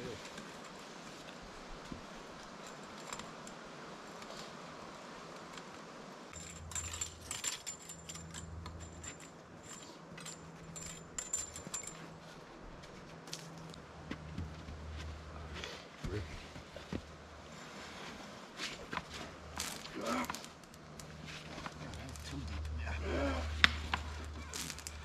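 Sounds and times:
low steady hum: 0.0s - 25.0s
light metallic clinking: 6.3s - 13.8s.

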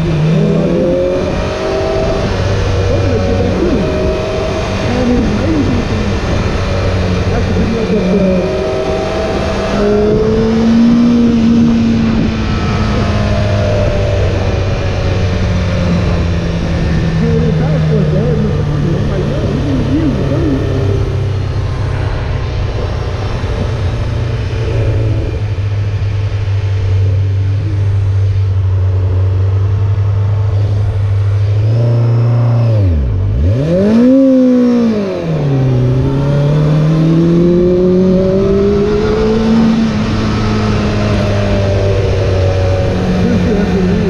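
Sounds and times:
wind rush: 0.0s - 28.9s
motorcycle engine running: 0.0s - 44.0s.

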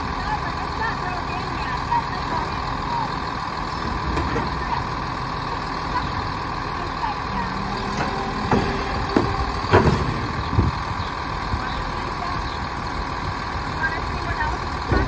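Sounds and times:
garbage truck idling: 0.0s - 15.0s
clanks of arm and cart: 3.8s - 4.9s, 7.4s - 11.9s, 14.8s - 15.0s
hydraulic whine: 6.8s - 13.3s.

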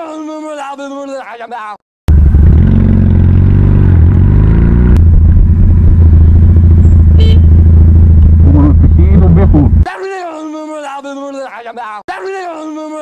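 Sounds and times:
motorcycle engine running: 2.1s - 9.8s.

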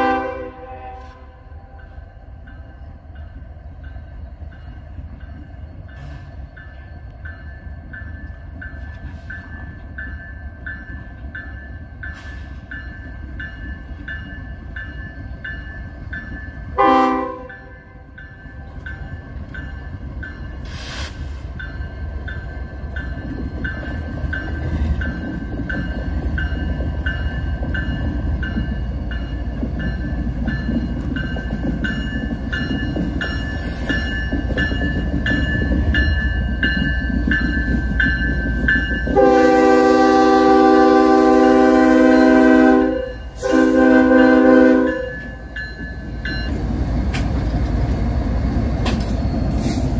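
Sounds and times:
locomotive horn blowing: 0.0s - 1.6s, 16.8s - 17.7s, 39.1s - 45.4s
crossing bell dinging: 0.0s - 47.2s
diesel locomotive rumbling: 0.0s - 49.9s.

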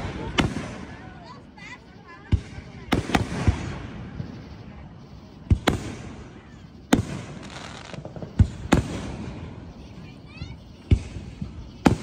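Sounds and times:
fireworks bursting overhead: 0.0s - 12.0s.

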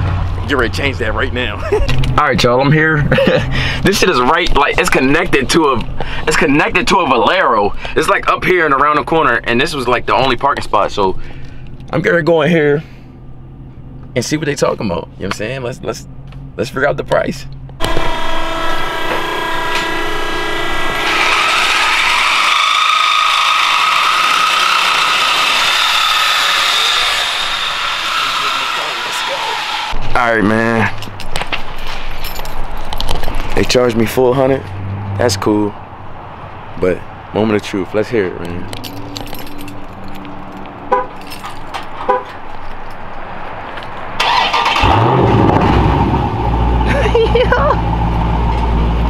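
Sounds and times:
loud car engine starting and running: 0.0s - 10.2s, 12.9s - 32.0s, 32.6s - 42.0s, 42.7s - 49.0s
power tool high-pitched whine: 17.8s - 30.0s.

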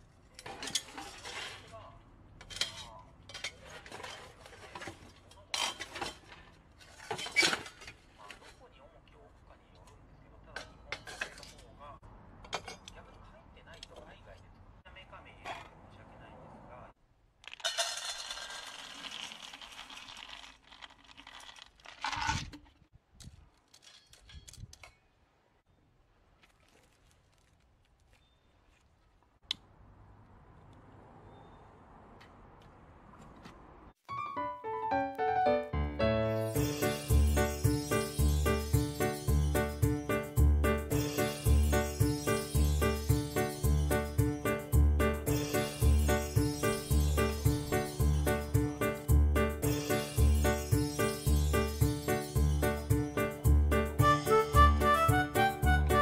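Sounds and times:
metal tongs clinking and scraping: 0.4s - 1.7s, 2.4s - 8.7s, 10.6s - 11.8s
wood pellets rattling: 17.4s - 22.8s
clicks and rustles: 17.4s - 25.0s.

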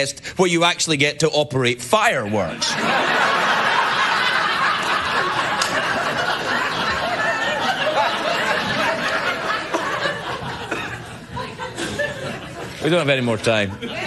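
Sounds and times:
audience laughing: 2.2s - 14.0s.

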